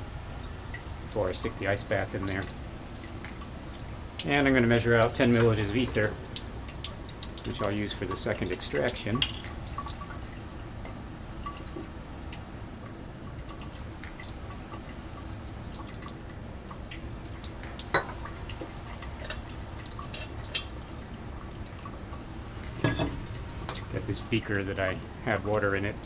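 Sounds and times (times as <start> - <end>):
fume hood hum: 0.0 - 26.0
glassware ticks and clinks: 17.9 - 18.2, 22.8 - 23.2.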